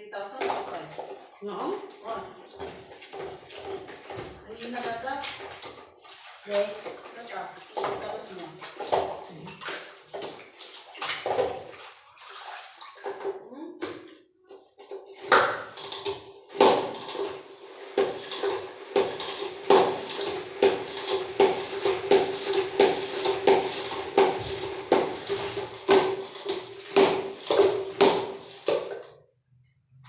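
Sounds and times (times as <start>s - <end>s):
mop handle pumping with knocks: 0.5s - 9.1s.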